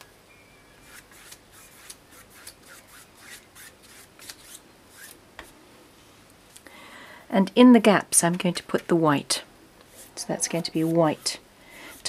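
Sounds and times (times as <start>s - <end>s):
paintbrush brushing on canvas: 9.9s - 12.0s.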